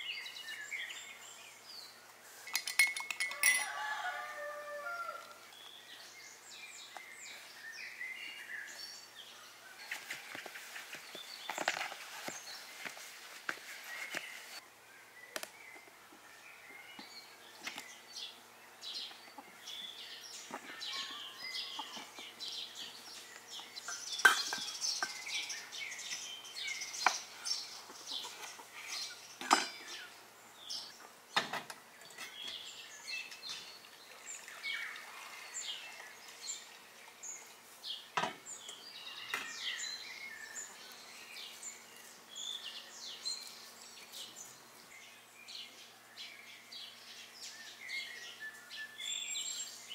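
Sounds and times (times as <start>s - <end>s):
small birds chirping: 0.0s - 2.8s, 3.8s - 49.9s
cookware knocks and clinks: 24.2s - 25.2s, 29.4s - 29.9s.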